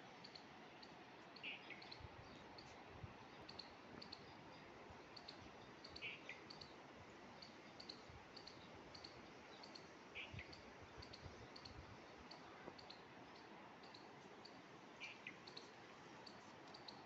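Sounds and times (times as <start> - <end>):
small high ticks: 0.2 - 2.0, 7.4 - 17.0.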